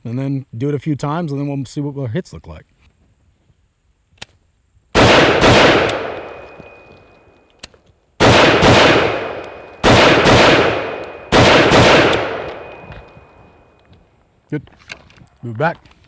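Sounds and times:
rifle shots echoing: 0:05.0 - 0:07.1, 0:08.2 - 0:13.6.

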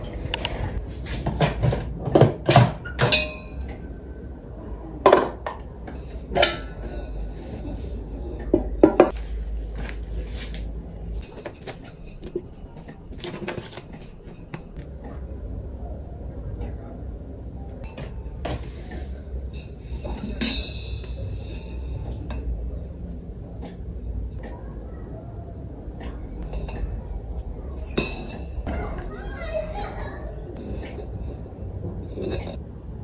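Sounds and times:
clicks and knocks of pot: 0:01.3 - 0:03.8
soft handling sounds: 0:06.8 - 0:14.9.

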